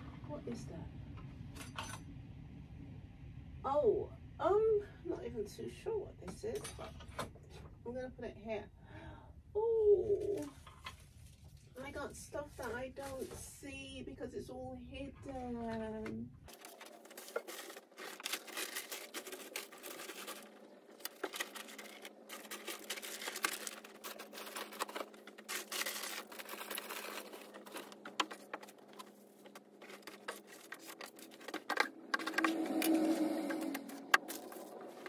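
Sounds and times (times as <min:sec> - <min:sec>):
faint steady hum: 0:00.0 - 0:35.0
plastic bags and paper rustling: 0:10.2 - 0:13.6, 0:16.5 - 0:35.0.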